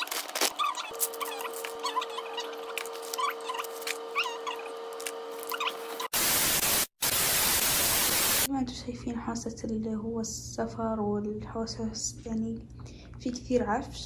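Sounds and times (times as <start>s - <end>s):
snack packets rustling: 0.0s - 2.0s
tv static hiss: 5.8s - 8.5s.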